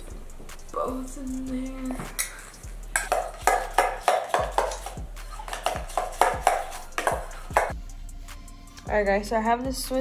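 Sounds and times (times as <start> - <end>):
utensil clinking in metal bowl: 2.2 - 7.7.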